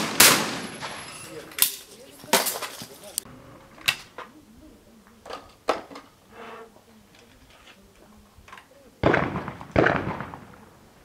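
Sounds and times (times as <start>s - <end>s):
sharp crack: 0.0s - 1.0s, 9.0s - 10.7s
shotgun shots: 0.0s - 1.1s, 9.0s - 10.7s.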